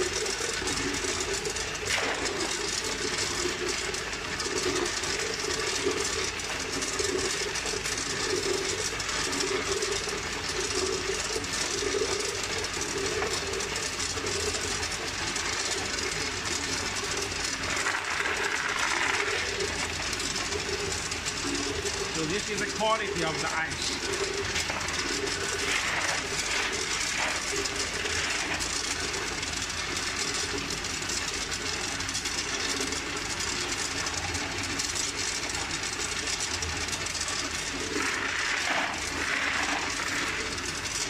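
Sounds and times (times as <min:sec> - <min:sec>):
ice machine running: 0:00.0 - 0:41.0
ice clattering into a basin: 0:00.1 - 0:41.0
plastic scoop scraping ice: 0:17.4 - 0:29.7, 0:37.8 - 0:40.8.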